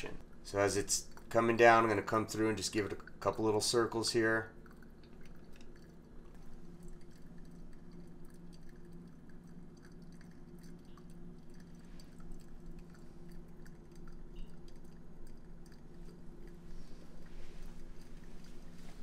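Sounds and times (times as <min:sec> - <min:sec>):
steady low hum: 0:00.0 - 0:19.0
coffee slurry sloshing: 0:00.1 - 0:19.0
small ticks: 0:04.6 - 0:19.0.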